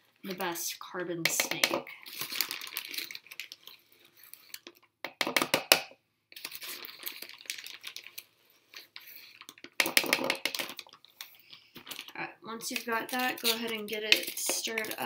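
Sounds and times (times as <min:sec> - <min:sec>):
spoon scraping sugar bag: 0:01.4 - 0:04.7, 0:06.3 - 0:15.0.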